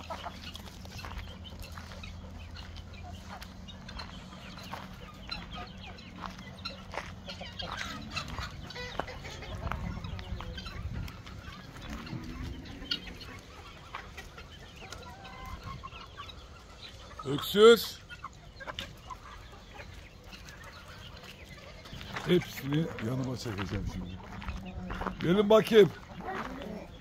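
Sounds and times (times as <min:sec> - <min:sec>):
chickens clucking: 0:00.0 - 0:27.0
young guinea fowl cheeping: 0:00.0 - 0:27.0.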